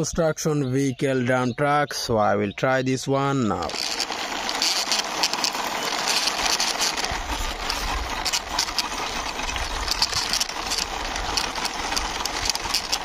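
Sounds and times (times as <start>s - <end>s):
toy truck wheels rolling on concrete: 3.2s - 13.0s.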